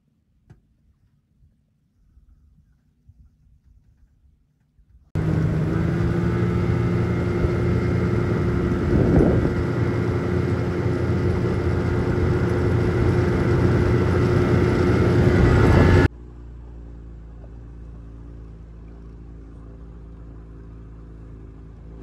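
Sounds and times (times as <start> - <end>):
outboard motor running: 5.2 - 22.0.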